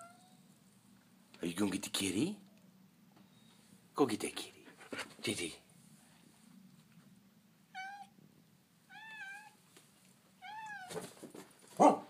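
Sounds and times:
cat meowing: 0.0 - 0.4, 7.7 - 8.2, 8.9 - 9.6, 10.4 - 11.0
rustling: 9.3 - 11.9.

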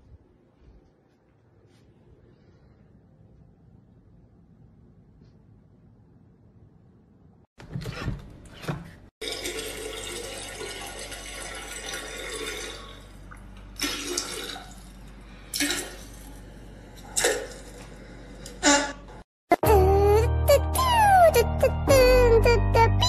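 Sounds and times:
toilet flushing: 9.2 - 16.4.

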